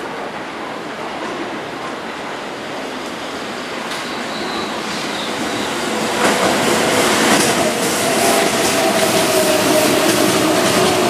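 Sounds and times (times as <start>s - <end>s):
train wheels rumbling on rail: 0.0s - 11.0s.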